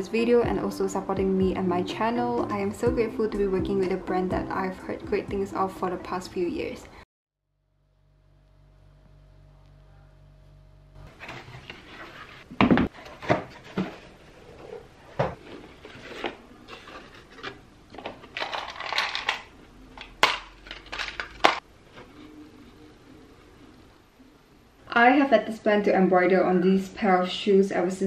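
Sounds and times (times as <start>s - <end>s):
cardboard flaps scraping: 11.1s - 17.4s.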